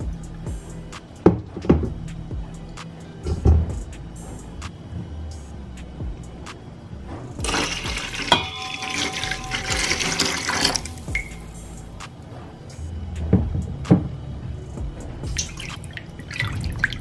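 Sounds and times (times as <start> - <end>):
milk pouring into metal bowl: 7.4 - 11.4
sharp clink with ringing tone: 7.5 - 11.6.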